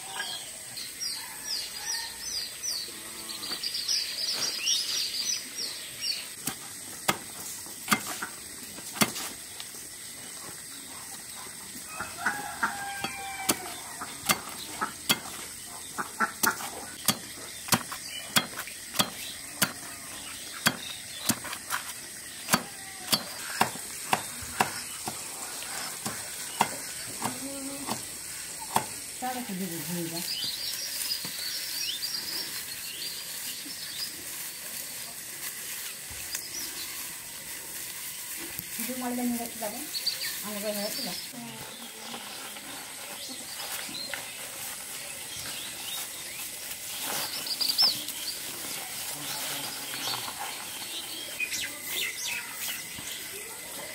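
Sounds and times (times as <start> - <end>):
birds chirping: 9.4 - 34.8, 38.1 - 53.9.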